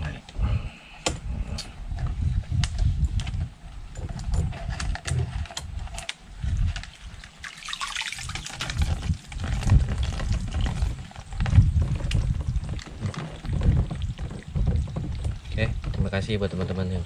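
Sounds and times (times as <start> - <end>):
low rumbling: 0.0 - 7.2, 8.3 - 17.0
water splashing and trickling: 6.4 - 17.0.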